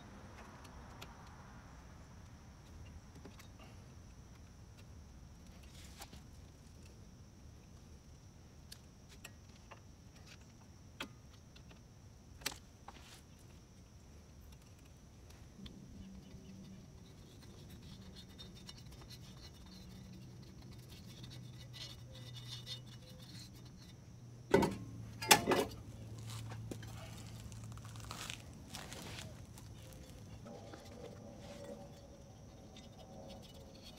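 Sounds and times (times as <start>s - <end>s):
faint low hum: 0.0s - 33.9s.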